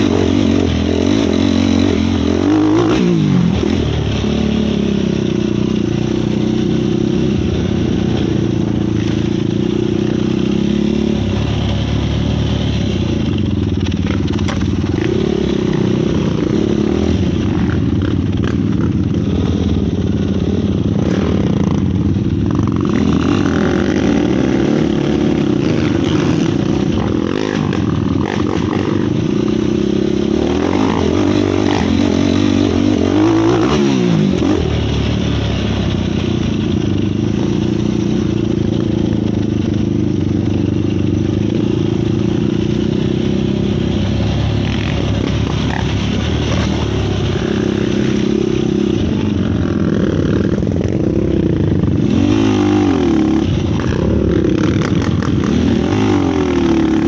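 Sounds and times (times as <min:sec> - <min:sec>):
quad engine revving: 0:00.0 - 0:57.0.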